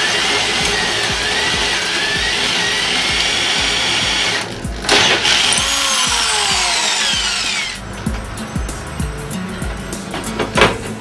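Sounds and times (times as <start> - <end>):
cordless drill running: 0.0 - 7.8
background music with beat: 0.0 - 11.0.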